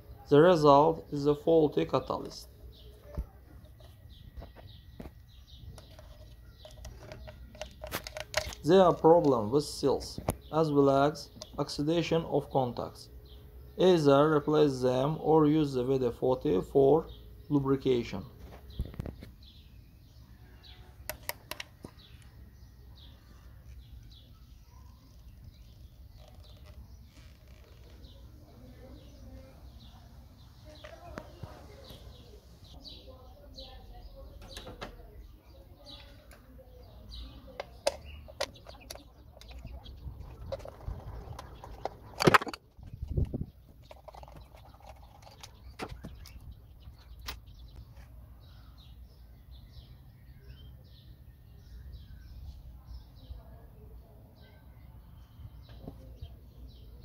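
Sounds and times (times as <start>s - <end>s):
birds chirping: 0.0s - 57.0s
plastic clicks and knocks: 3.1s - 8.7s, 21.0s - 22.3s, 37.6s - 39.7s, 40.4s - 46.4s
sharp plastic clicks: 21.0s - 22.3s, 40.4s - 46.5s.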